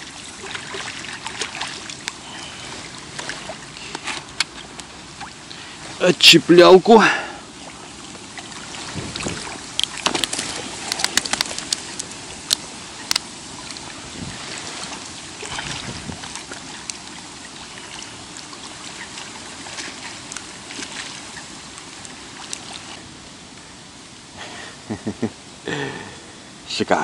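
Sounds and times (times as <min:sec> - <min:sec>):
wet rustling and sloshing: 0:00.0 - 0:24.4
fish slapping: 0:08.4 - 0:23.0.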